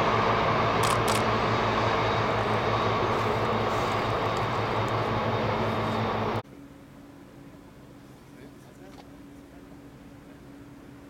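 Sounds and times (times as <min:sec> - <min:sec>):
train wheels rumbling on track: 0:00.0 - 0:06.4
low hum: 0:00.0 - 0:07.3.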